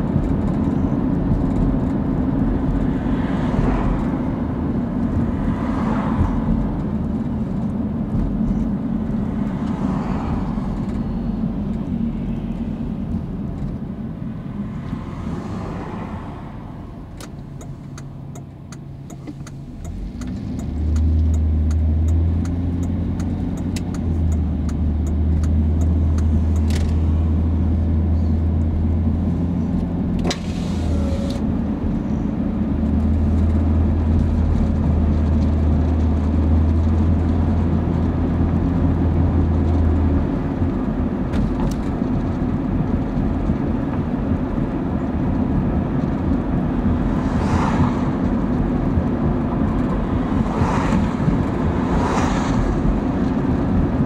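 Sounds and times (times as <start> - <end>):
car tyre and engine rumble: 0.0 - 54.0
car passing by: 2.8 - 4.4, 5.2 - 6.8, 9.2 - 12.9, 14.4 - 17.2, 47.0 - 48.6, 49.8 - 53.4.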